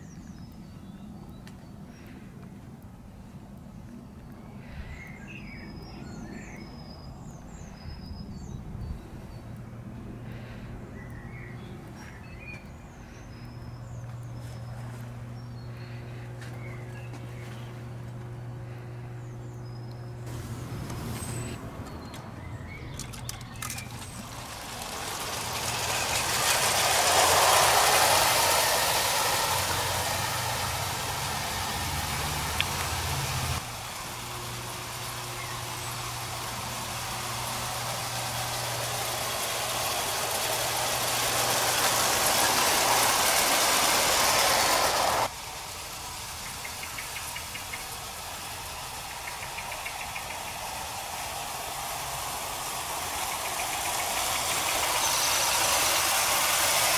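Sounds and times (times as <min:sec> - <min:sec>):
toy train wheels clattering on rails: 0:20.8 - 0:56.9
clockwork motors whirring: 0:22.8 - 0:56.9.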